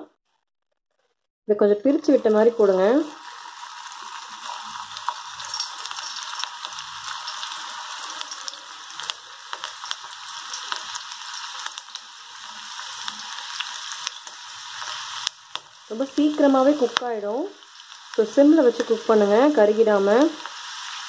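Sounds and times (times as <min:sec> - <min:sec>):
hot oil sizzling and popping: 0:01.7 - 0:21.0.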